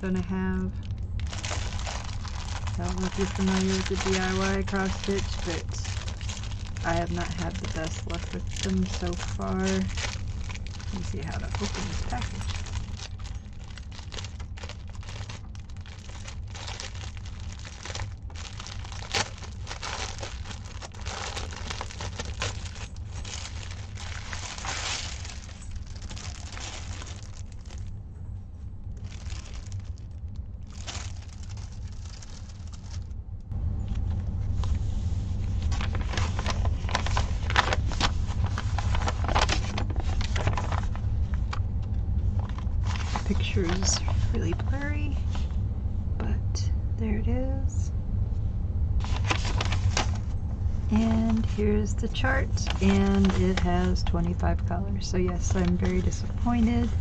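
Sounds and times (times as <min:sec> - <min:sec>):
steady low hum: 0:00.0 - 0:57.0
plastic packaging crinkling: 0:00.5 - 0:28.0, 0:28.9 - 0:33.2, 0:35.4 - 0:41.6, 0:42.3 - 0:45.5, 0:49.0 - 0:50.4, 0:51.0 - 0:57.0.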